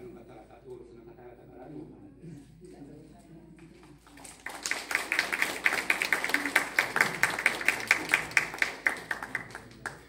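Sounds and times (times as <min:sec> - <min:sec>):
nearby claps: 0:03.6 - 0:10.0
audience applauding: 0:04.0 - 0:10.0.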